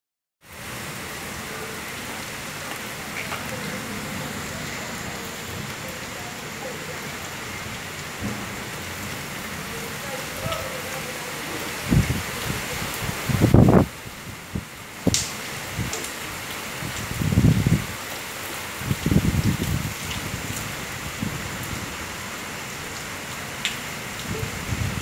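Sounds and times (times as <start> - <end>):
steady rain falling: 0.4 - 25.0
low rumble of wind or thunder: 8.1 - 10.6, 11.8 - 16.0, 16.8 - 18.0, 18.8 - 22.0, 24.2 - 25.0.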